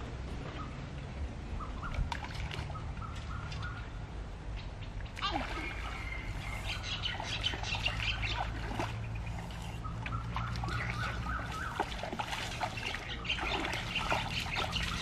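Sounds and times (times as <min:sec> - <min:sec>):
water splashing: 0:01.8 - 0:03.8, 0:05.0 - 0:15.0
birds chirping and calling: 0:02.6 - 0:15.0.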